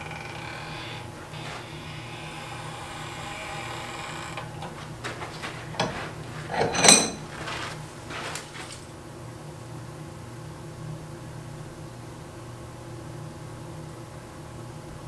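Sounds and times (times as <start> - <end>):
metal scraping on metal: 5.8 - 7.3
loud ringing metal clink: 6.6 - 7.2.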